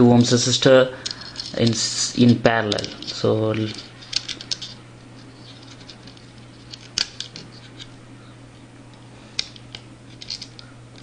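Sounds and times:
faint low hum: 0.0 - 11.0
metallic clicks and scrapes: 1.0 - 7.9, 9.4 - 11.0.

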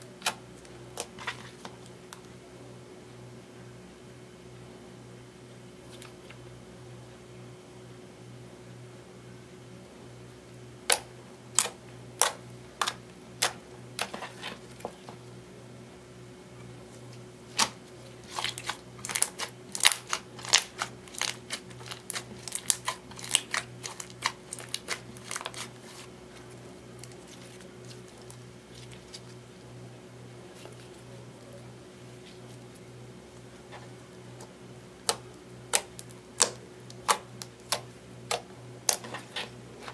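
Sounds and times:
faint low hum: 0.0 - 39.9
slime clicking and popping: 35.0 - 39.0.

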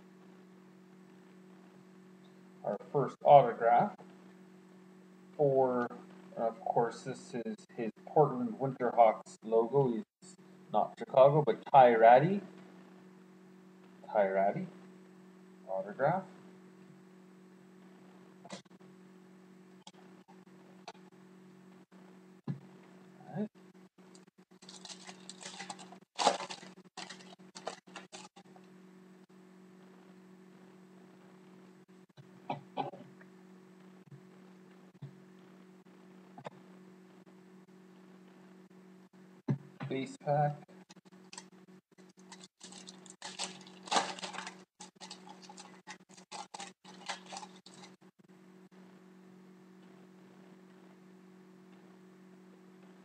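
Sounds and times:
faint steady hum: 0.0 - 53.0
foil wrapper tearing and crinkling: 24.6 - 28.4, 42.2 - 47.9.

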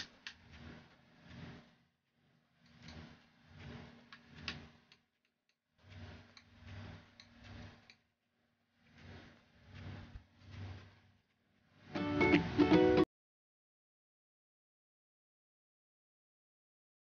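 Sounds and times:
painting tool swishing on canvas: 8.7 - 11.9.

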